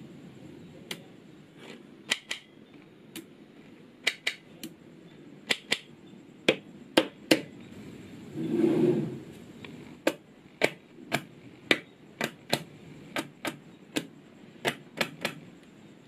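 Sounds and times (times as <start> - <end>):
magnetic balls clicking together: 2.1 - 3.3, 4.0 - 4.8, 5.4 - 7.6, 9.6 - 15.7.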